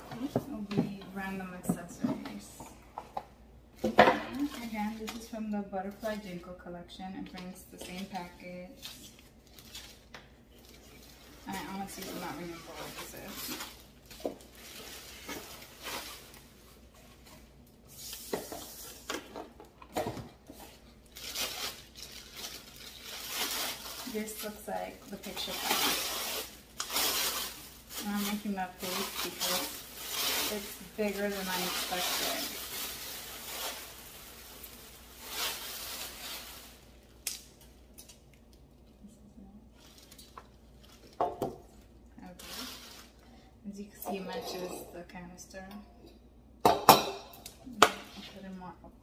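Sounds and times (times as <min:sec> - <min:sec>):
wrapping paper rustling: 0:07.2 - 0:19.1, 0:20.4 - 0:38.7, 0:39.7 - 0:43.3
plastic bag crinkling: 0:07.7 - 0:19.0, 0:20.6 - 0:38.6, 0:39.7 - 0:43.2.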